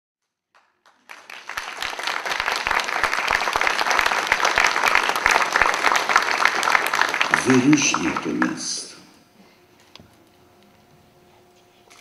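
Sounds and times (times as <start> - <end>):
audience applauding: 0.5 - 9.0.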